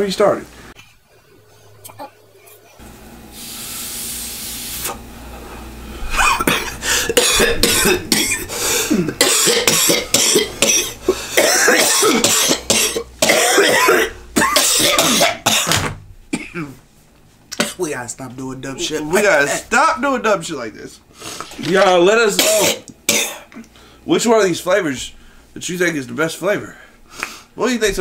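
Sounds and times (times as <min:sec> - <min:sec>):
person coughing harshly: 0:06.1 - 0:16.8, 0:22.4 - 0:23.6.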